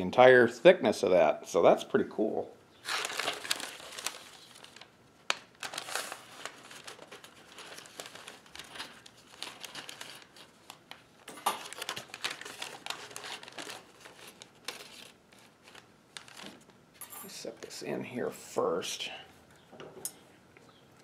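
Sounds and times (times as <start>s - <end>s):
paper and cardboard crinkling: 2.8s - 16.7s.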